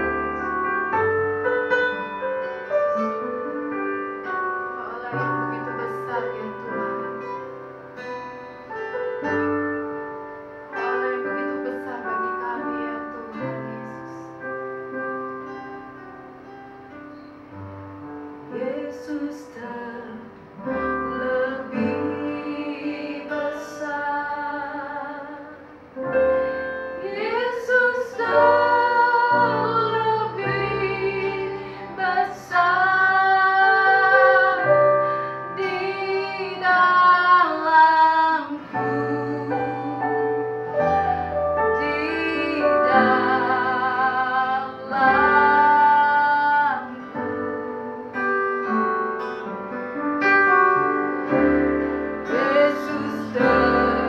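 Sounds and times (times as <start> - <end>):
band of keyboard guitar and bass: 0.0 - 11.2, 38.6 - 54.0
women singing worship song: 18.5 - 25.7, 26.9 - 40.4, 41.8 - 48.2, 52.2 - 54.0.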